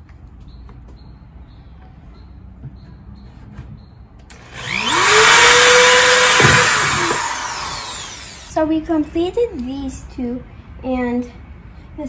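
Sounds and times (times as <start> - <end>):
drill bit hissing through plastic: 4.3 - 8.6
electric drill whining: 4.3 - 8.6.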